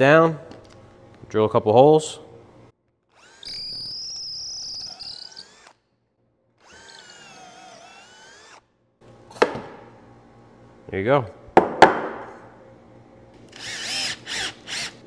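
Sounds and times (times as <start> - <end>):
cordless drill motor whine: 3.1 - 5.8, 6.6 - 8.7, 13.5 - 15.0.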